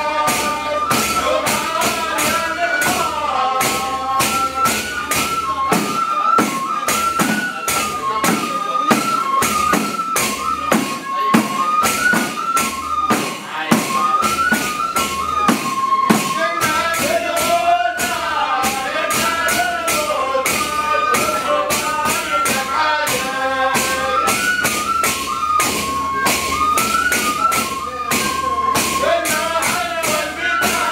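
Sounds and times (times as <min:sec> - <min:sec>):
men singing devotional song: 0:00.0 - 0:04.8, 0:16.2 - 0:24.4, 0:29.0 - 0:30.9
frame drums beating: 0:00.0 - 0:30.9.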